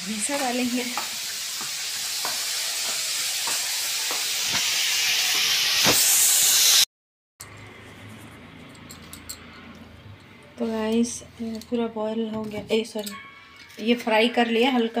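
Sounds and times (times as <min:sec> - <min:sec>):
food sizzling in hot oil: 0:00.0 - 0:06.9.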